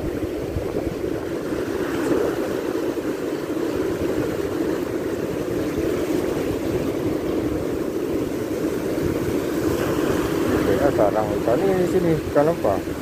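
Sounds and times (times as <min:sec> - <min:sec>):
surf washing and foaming: 0:00.0 - 0:13.0
wind rumble on microphone: 0:00.0 - 0:13.0.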